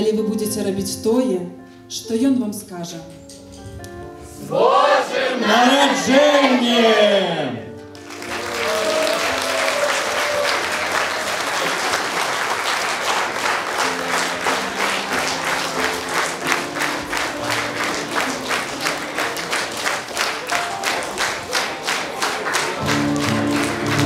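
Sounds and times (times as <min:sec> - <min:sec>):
background music: 0:00.0 - 0:24.0
audience applauding: 0:05.2 - 0:24.0
rhythmic clapping in unison: 0:07.9 - 0:24.0.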